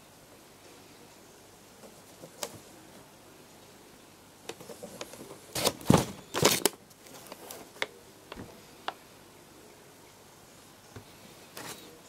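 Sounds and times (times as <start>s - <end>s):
cardboard boxes tapping and rustling: 4.5s - 6.7s.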